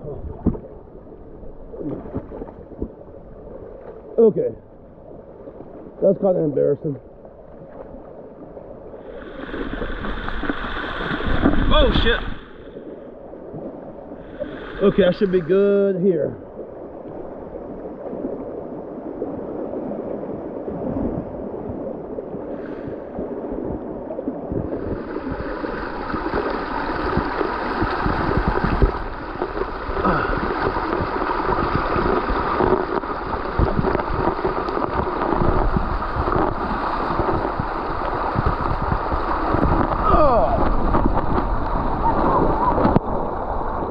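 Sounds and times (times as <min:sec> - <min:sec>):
water rushing over rocks: 0:09.1 - 0:12.6, 0:13.9 - 0:16.0, 0:17.2 - 0:43.9
low bumps: 0:24.5 - 0:43.9.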